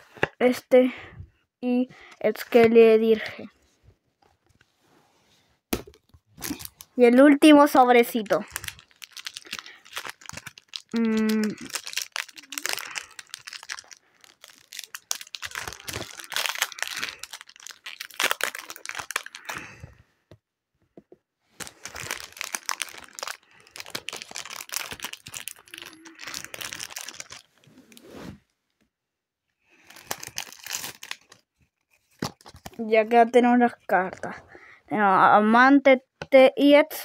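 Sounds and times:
foil wrapper crinkling and tearing: 5.8 - 7.0, 8.0 - 19.8, 21.6 - 27.6, 29.7 - 32.8.

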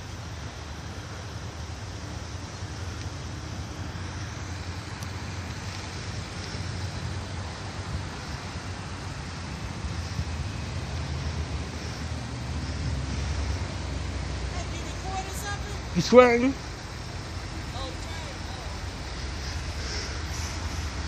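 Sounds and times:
distant heavy vehicle rumble: 0.0 - 21.0.

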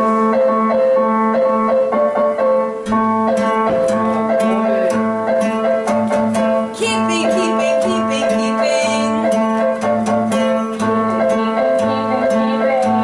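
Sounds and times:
acoustic guitar strumming: 0.0 - 13.0
steady held note: 3.4 - 11.0.

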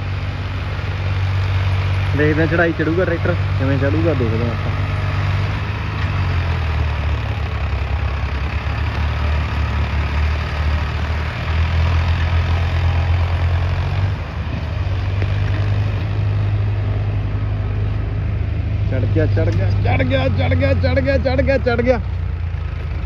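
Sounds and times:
tractor diesel engine under load: 0.0 - 23.0.

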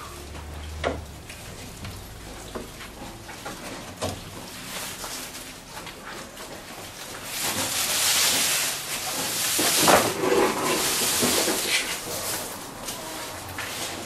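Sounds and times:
grass leaves rustling: 3.6 - 14.0.

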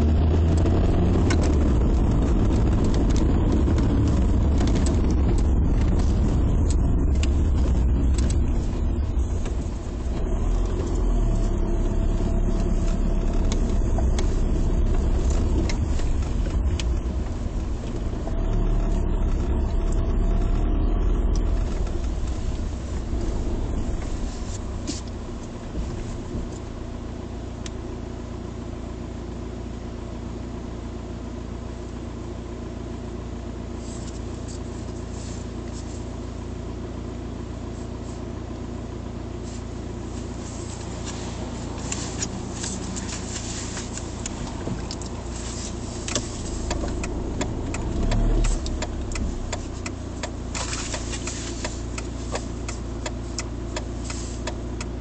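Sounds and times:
car engine and tyre rumble: 0.0 - 55.0.

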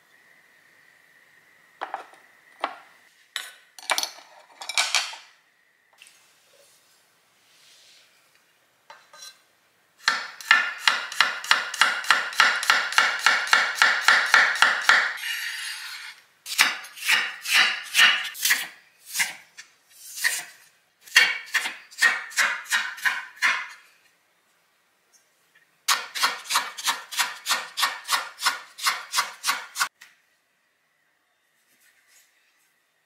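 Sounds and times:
knife blade scraping board: 15.2 - 16.2, 16.9 - 20.6, 25.9 - 29.9.

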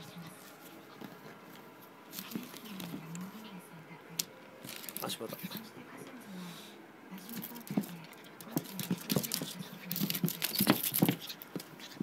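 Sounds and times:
puppy claws tapping on floor: 7.4 - 12.0.

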